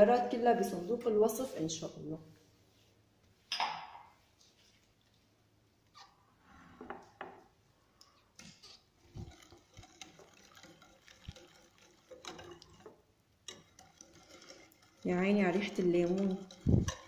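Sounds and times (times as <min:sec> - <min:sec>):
batter sloshing: 0:08.5 - 0:17.0
whisk clinking against glass bowl: 0:09.1 - 0:17.0.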